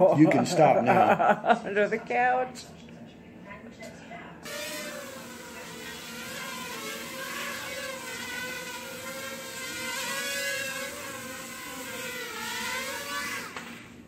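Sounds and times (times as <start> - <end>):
quadcopter motors whining: 4.4 - 14.0.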